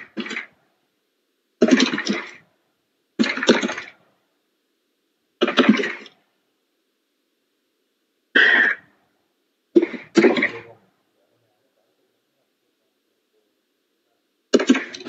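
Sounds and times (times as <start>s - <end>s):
person coughing: 8.4s - 8.8s.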